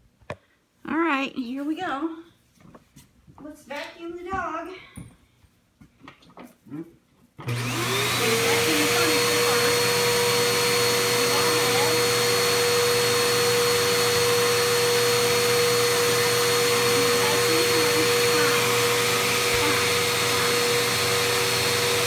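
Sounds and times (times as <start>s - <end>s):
vacuum cleaner running: 7.4s - 22.0s.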